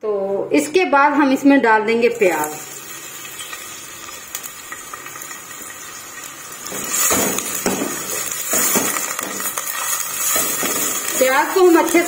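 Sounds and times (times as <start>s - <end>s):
onions frying in oil: 0.6s - 12.0s
spatula stirring and scraping pot: 6.7s - 11.4s.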